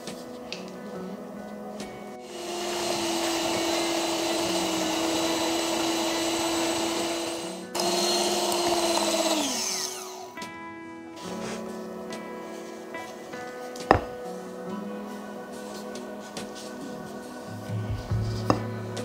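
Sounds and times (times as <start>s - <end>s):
background music: 0.0s - 19.0s
electric hand mixer whining: 2.2s - 10.4s.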